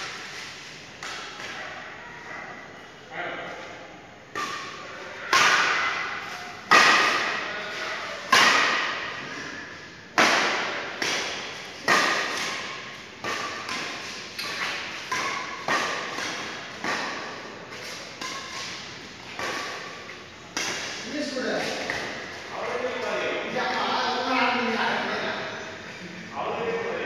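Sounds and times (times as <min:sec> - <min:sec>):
rackets hitting shuttlecock: 0:00.0 - 0:01.8, 0:04.3 - 0:09.2, 0:10.1 - 0:23.1.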